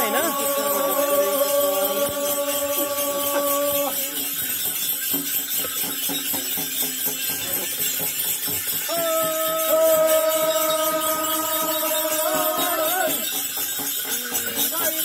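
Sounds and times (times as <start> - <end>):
held chant: 0.0 - 4.6, 8.9 - 14.4
ritual percussion beating: 0.0 - 15.0.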